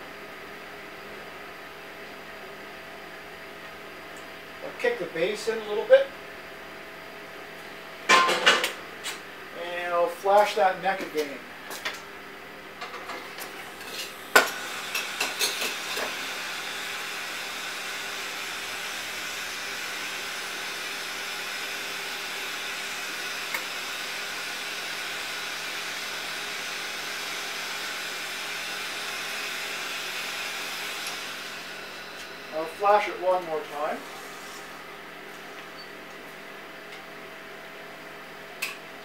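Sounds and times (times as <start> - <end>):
gas burner hissing: 13.4 - 35.9.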